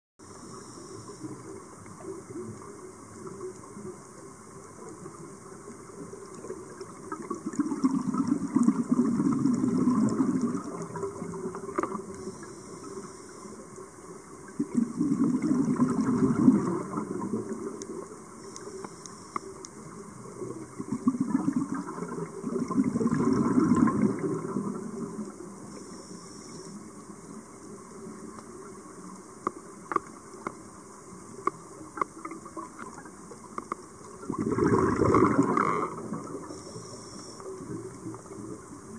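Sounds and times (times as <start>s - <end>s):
underwater hiss: 0.2s - 5.4s, 6.0s - 30.4s, 33.2s - 38.9s
exhaled breath bubbling underwater: 7.1s - 13.0s, 14.5s - 17.7s, 20.7s - 25.2s, 34.2s - 37.8s
faint clicks: 9.4s - 14.8s, 15.9s - 21.0s, 23.7s - 34.3s.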